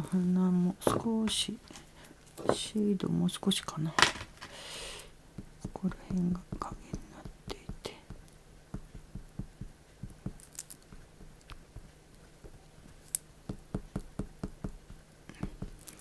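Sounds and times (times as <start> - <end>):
crayon tapping and scratching paper: 5.3 - 16.0.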